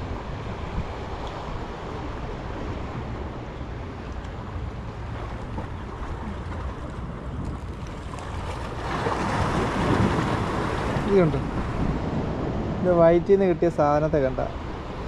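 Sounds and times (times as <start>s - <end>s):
wind on microphone: 0.0s - 15.0s
sea waves washing against rocks: 5.0s - 13.2s.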